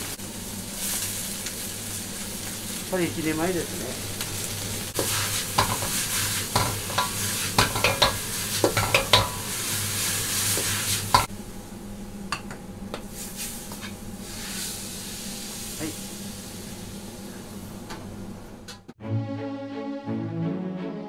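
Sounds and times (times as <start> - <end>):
food sizzling in a wok: 0.0 - 12.2, 13.0 - 18.9
wok clinking: 5.0 - 9.5, 10.6 - 11.3.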